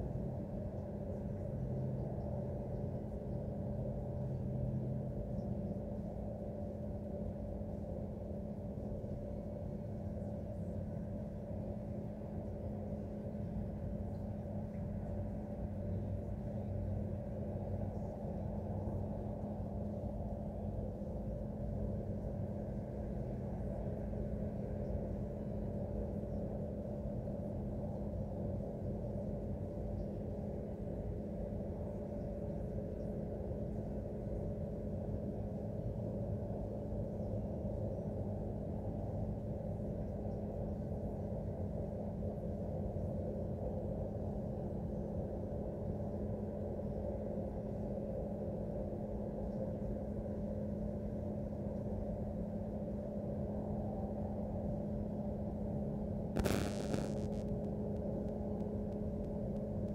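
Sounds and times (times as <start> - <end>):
humming tones: 56.4 - 59.9.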